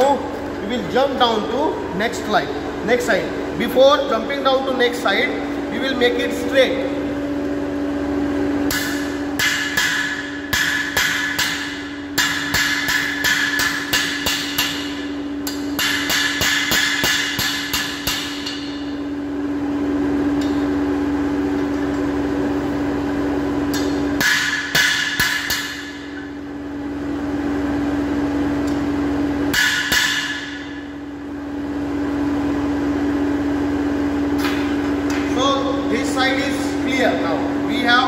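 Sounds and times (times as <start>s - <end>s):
steady hum: 0.0s - 38.0s
hammer ringing on anvil: 8.7s - 18.9s.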